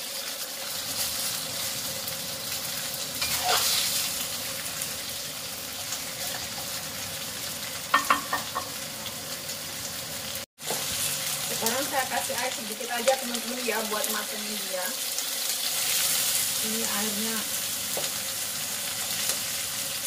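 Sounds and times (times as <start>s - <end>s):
chicken sizzling in hot oil: 0.0s - 20.0s
metal spatula scraping wok: 3.2s - 4.1s
spatula clacking against wok: 7.9s - 8.7s.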